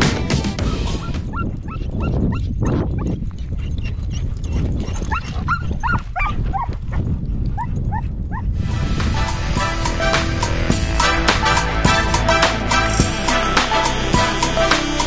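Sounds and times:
low rumble: 0.0 - 14.4
dog yipping and whining: 0.7 - 3.2, 3.8 - 6.7.

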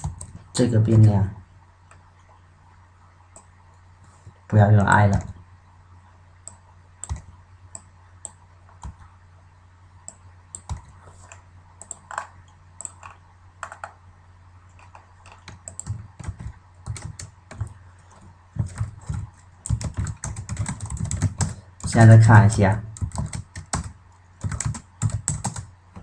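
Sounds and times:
computer keyboard typing: 0.0 - 0.4, 6.4 - 9.1, 10.0 - 14.0, 14.7 - 22.1, 22.9 - 26.0
faint low hum: 0.0 - 26.0.

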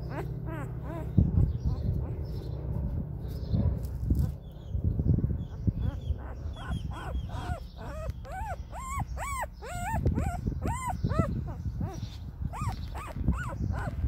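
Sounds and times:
puppy whimpering: 0.0 - 2.4, 5.5 - 14.0
low rumbling noise: 0.0 - 9.2.

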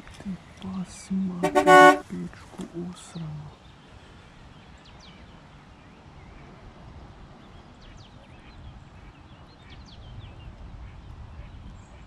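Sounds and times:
birds chirping: 0.0 - 6.5.

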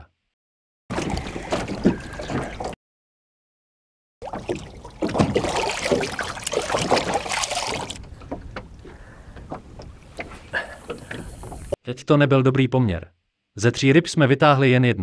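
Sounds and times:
fish splashing water: 0.9 - 2.8, 4.2 - 8.1
water lapping: 0.9 - 2.8, 4.2 - 11.8
wind: 0.9 - 2.8, 4.2 - 11.8.

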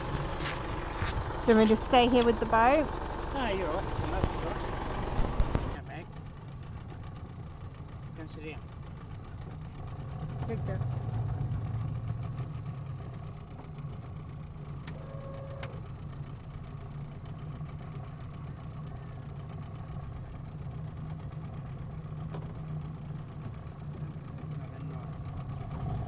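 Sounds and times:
outboard motor running: 0.0 - 26.0.

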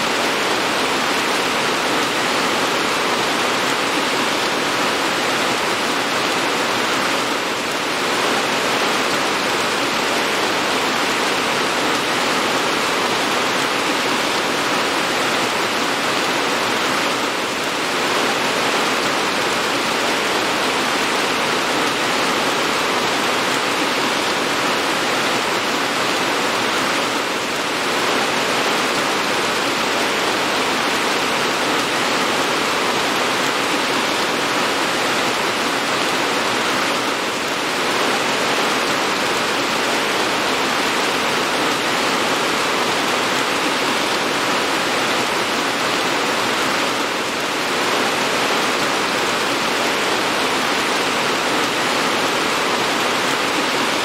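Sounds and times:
heavy rain hiss: 0.0 - 54.0.

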